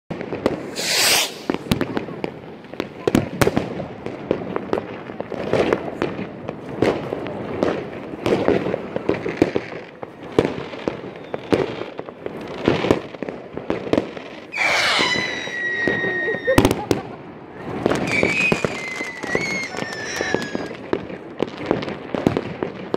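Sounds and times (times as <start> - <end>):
fireworks bangs and pops: 0.1 - 22.9
whistling rocket: 0.4 - 1.8, 11.1 - 11.8, 14.5 - 17.1, 17.8 - 20.8
firework hissing burst: 0.4 - 2.0, 14.5 - 17.1.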